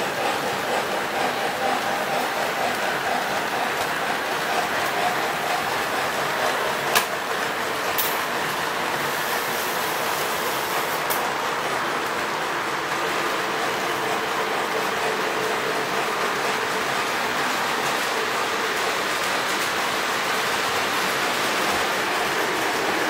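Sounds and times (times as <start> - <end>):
model train rumbling and whirring: 0.0 - 23.0.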